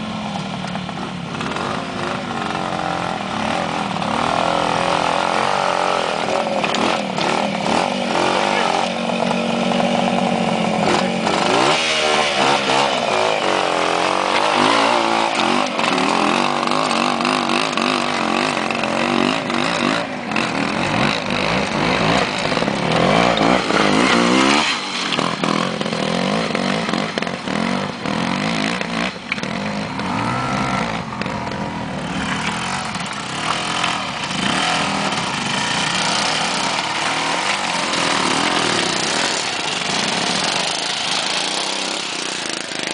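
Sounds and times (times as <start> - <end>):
motorcycle engines revving: 0.0 - 42.9.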